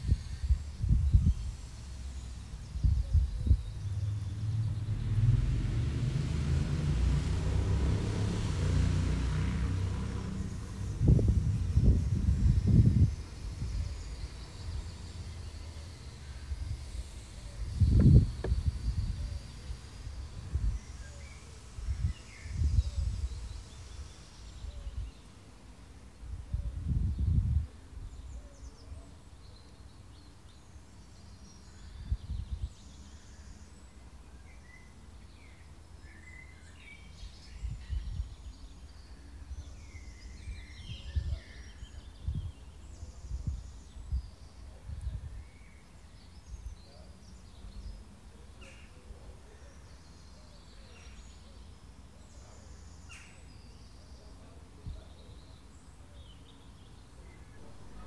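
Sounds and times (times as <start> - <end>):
small birds chirping: 0.0 - 58.0
low rumbles: 0.8 - 13.9.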